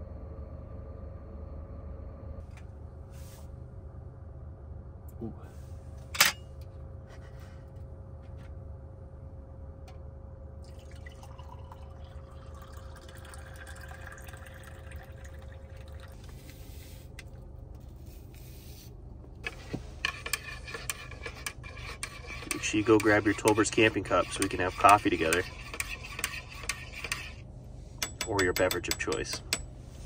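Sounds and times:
steady low hum: 0:00.0 - 0:30.0
hot water pouring into mug: 0:10.6 - 0:16.2.

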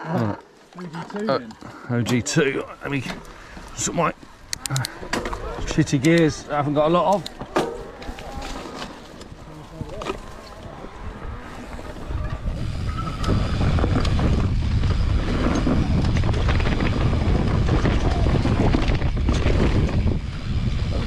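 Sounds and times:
bike tyre noise: 0:02.5 - 0:21.0
bike clicks and rattles: 0:02.8 - 0:21.0
wind rushing over microphone: 0:05.2 - 0:21.0.

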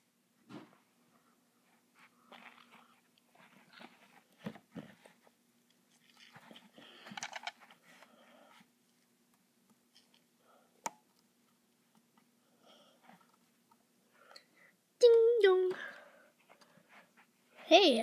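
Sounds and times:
plastic toy figures handled: 0:05.9 - 0:08.1.

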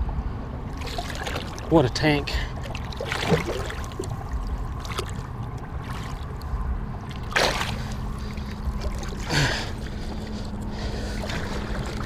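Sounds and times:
water sloshing: 0:00.7 - 0:12.0
short water splash: 0:00.8 - 0:01.7, 0:02.6 - 0:04.1, 0:07.1 - 0:08.0.

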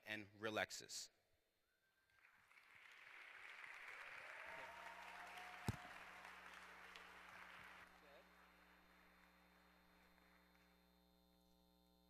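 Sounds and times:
audience applauding: 0:02.2 - 0:10.4.

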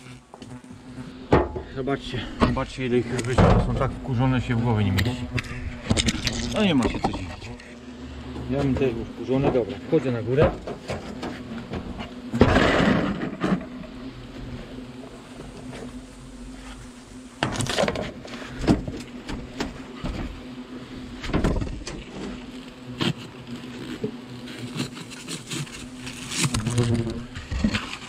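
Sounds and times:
hornets buzzing: 0:00.0 - 0:28.0
knocks and rustles at wall: 0:17.4 - 0:20.4.

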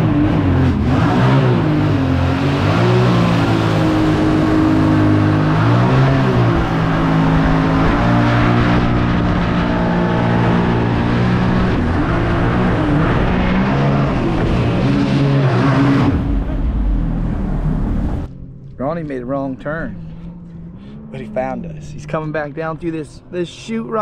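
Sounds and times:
small boat engine running hard: 0:00.0 - 0:18.3
water and wind rushing: 0:00.0 - 0:18.3.

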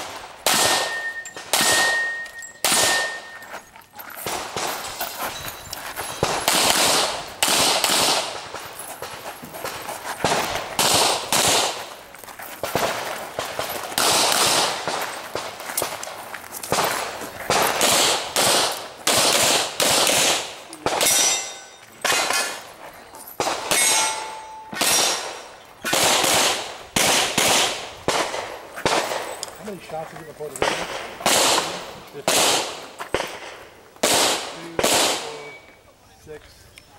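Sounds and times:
handgun shots echoing: 0:00.0 - 0:03.4, 0:06.2 - 0:09.2, 0:10.2 - 0:12.0, 0:12.7 - 0:22.6, 0:23.4 - 0:29.5, 0:30.5 - 0:35.7
steel target ringing: 0:00.6 - 0:03.6, 0:21.0 - 0:22.6, 0:23.7 - 0:25.4.

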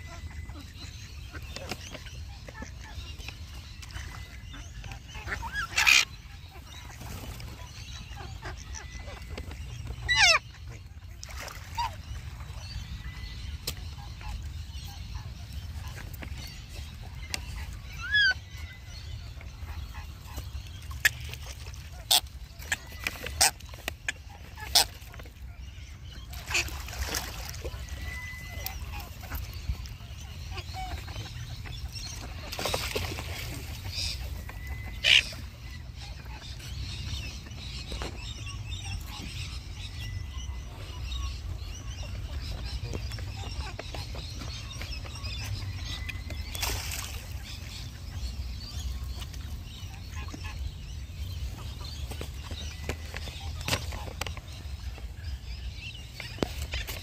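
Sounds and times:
birds giving harsh calls: 0:26.3 - 0:37.0.

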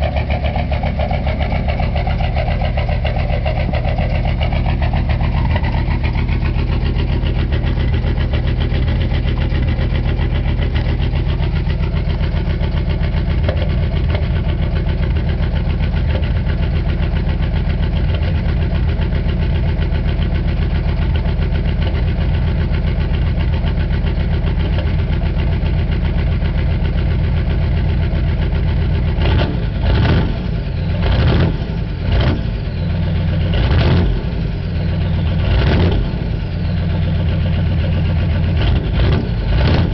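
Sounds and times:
diesel engine idling with clatter: 0:00.0 - 0:39.9.

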